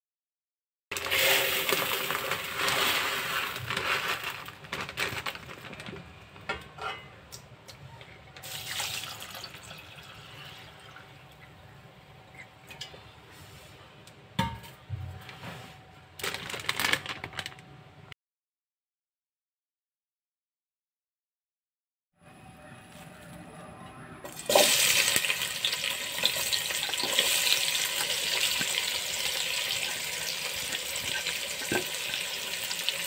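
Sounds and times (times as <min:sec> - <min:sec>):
rice poured into plastic bowl: 0:01.0 - 0:05.3
water pouring over rice: 0:08.4 - 0:10.1.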